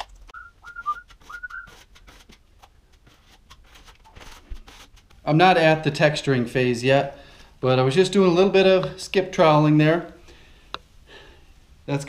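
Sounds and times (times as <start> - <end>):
drywall tools clicking and scraping: 0.0 - 5.3
man whistling: 0.4 - 1.8.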